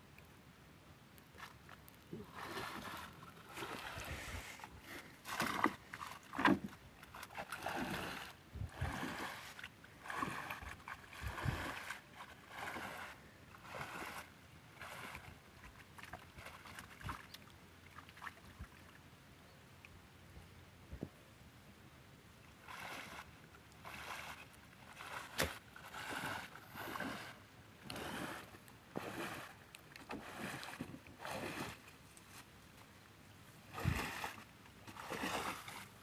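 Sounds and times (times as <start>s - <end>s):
sloshing steps in water: 5.2s - 14.2s, 22.7s - 28.4s, 29.0s - 31.9s, 33.7s - 36.0s.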